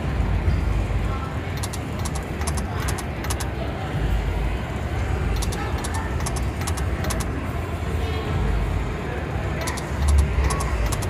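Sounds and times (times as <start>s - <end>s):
low casino rumble: 0.0s - 11.0s
slot machine reel ticks: 1.6s - 3.5s, 5.4s - 7.3s, 9.6s - 11.0s.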